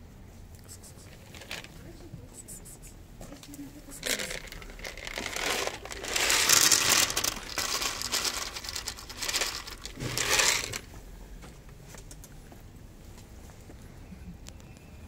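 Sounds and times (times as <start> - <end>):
kibble rattling into plastic plate: 1.2 - 1.8, 4.0 - 10.9.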